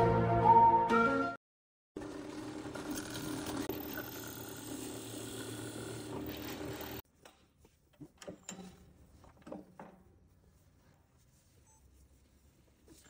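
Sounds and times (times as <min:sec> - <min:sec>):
drill press boring into wood: 0:02.0 - 0:07.0.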